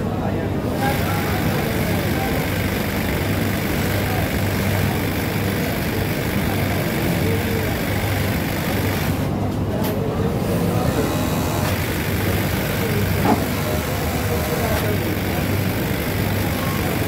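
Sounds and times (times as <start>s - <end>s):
industrial sewing machines running: 0.2s - 17.0s.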